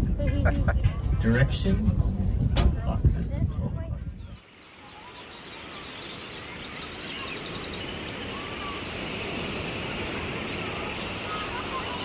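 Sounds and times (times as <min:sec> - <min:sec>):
small birds chirping: 0:03.8 - 0:12.0
bird trill: 0:04.3 - 0:12.0
steady hiss: 0:04.4 - 0:12.0.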